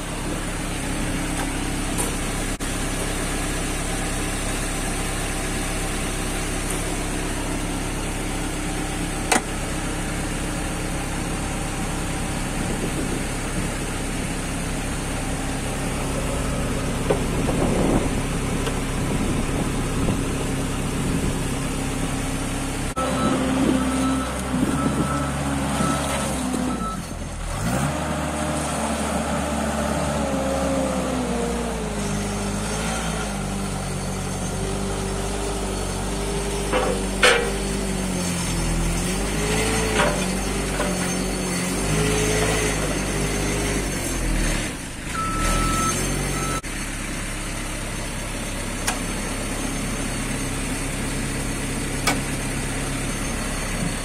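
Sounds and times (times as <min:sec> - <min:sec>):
diesel engine idling: 0:00.0 - 0:27.8, 0:44.8 - 0:54.0.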